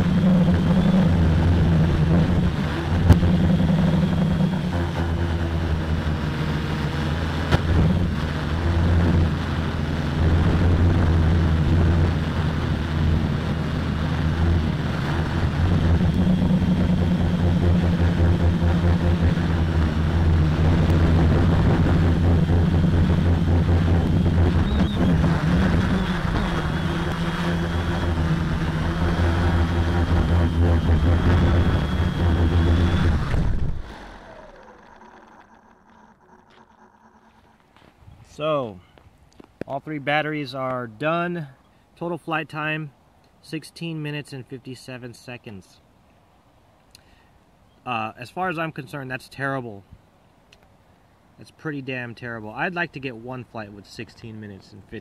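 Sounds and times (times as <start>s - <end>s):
drone motors humming: 0.0s - 38.4s.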